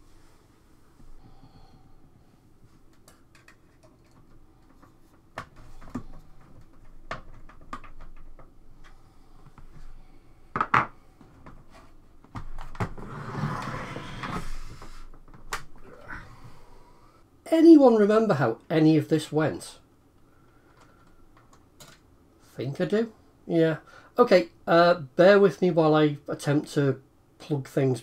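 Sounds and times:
clicks and knocks of computer parts: 0:03.0 - 0:08.6.

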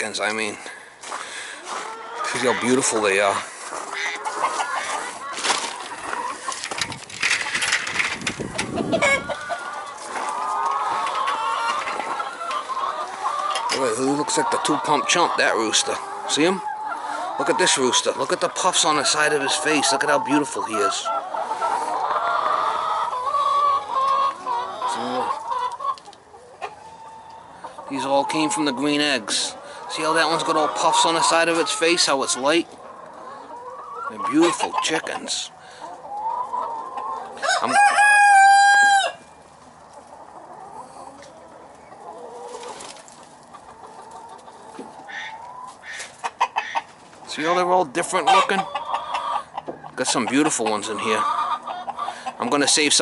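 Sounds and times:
chickens clucking: 0:00.0 - 0:53.0
rooster crowing: 0:37.4 - 0:39.2.

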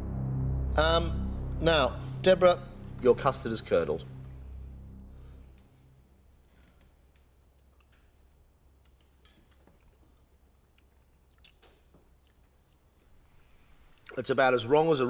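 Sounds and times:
steady low hum: 0:00.0 - 0:08.9.

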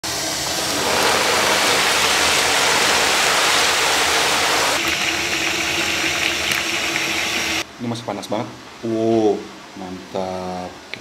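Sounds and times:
hot oil sizzling: 0:00.0 - 0:07.6.

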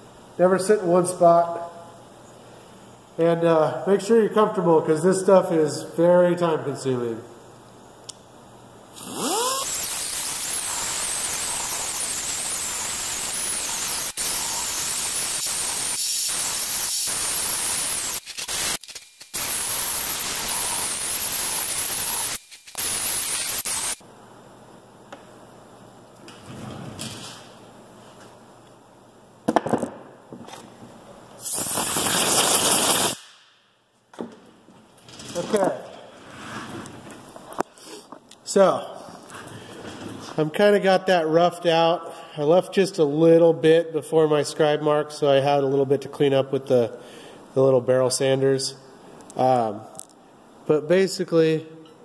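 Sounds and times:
pneumatic die grinder whining: 0:09.0 - 0:24.0
air blow gun blast: 0:31.4 - 0:33.6.

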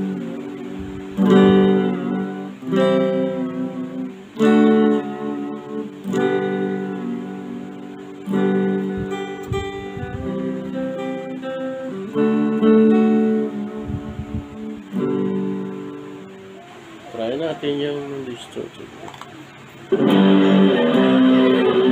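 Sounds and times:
electric guitar chords strummed: 0:00.0 - 0:21.9.

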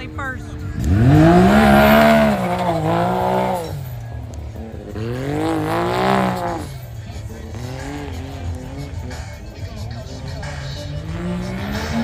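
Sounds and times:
utility vehicle engine revving: 0:00.0 - 0:12.0.

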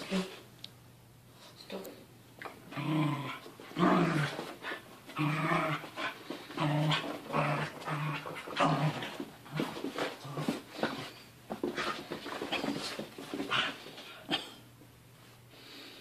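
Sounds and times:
dogs play growling and grunting: 0:02.4 - 0:14.7.

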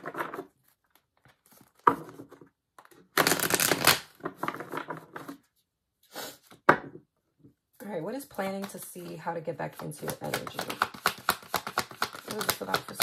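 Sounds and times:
cards being shuffled: 0:00.0 - 0:05.4, 0:08.3 - 0:13.0.

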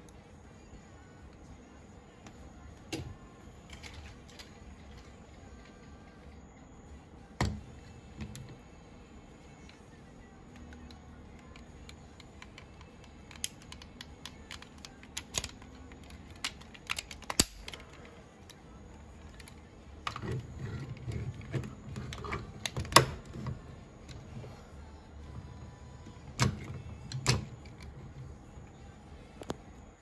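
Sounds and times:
plastic toy parts clicking: 0:03.7 - 0:05.1, 0:10.5 - 0:18.6, 0:19.2 - 0:23.5
plastic parts rubbing and knocking: 0:19.2 - 0:24.6.

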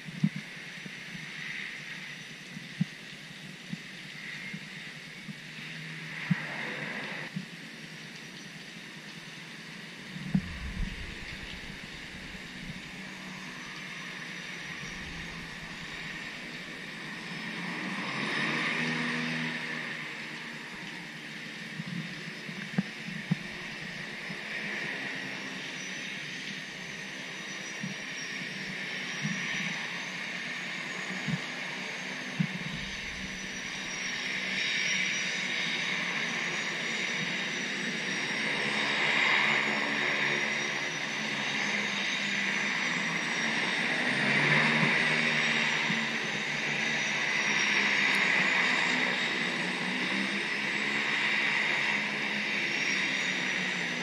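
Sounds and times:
propeller engines droning: 0:00.0 - 0:54.0
high thin whine: 0:10.0 - 0:18.6, 0:30.7 - 0:36.6.

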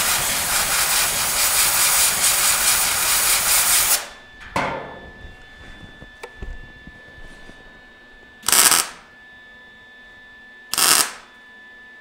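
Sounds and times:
compressed air blow gun blasting: 0:00.0 - 0:04.2, 0:08.4 - 0:09.0, 0:10.7 - 0:11.2.

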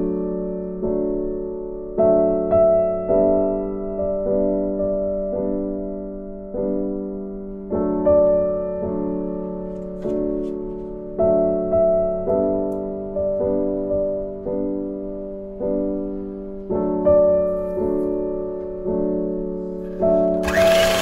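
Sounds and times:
slow piano music: 0:00.0 - 0:21.0
electric hand mixer whirring: 0:20.4 - 0:21.0.

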